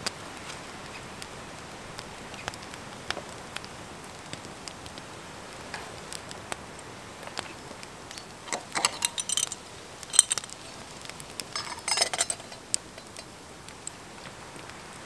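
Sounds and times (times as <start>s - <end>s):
campfire crackling: 0.0s - 15.0s
small metal objects clinking: 8.1s - 14.0s.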